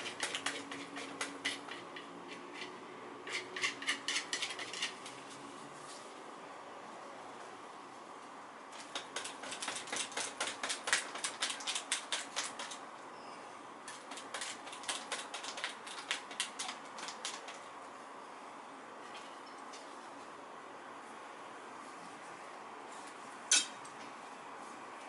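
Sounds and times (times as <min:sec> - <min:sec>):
brush dabbing paint on canvas: 0:00.0 - 0:02.7.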